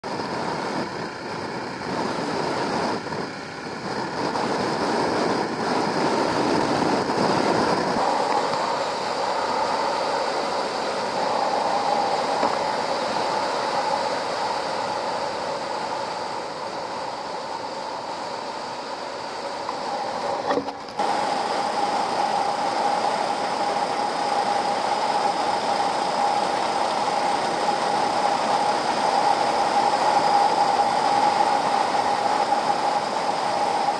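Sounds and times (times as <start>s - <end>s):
wind and road noise: 0.1s - 33.9s.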